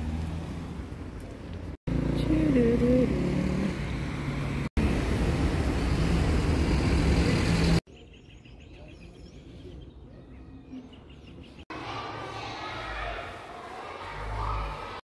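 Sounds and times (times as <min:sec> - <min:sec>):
highway traffic rumble: 0:00.0 - 0:07.9
small birds chirping: 0:07.9 - 0:11.7.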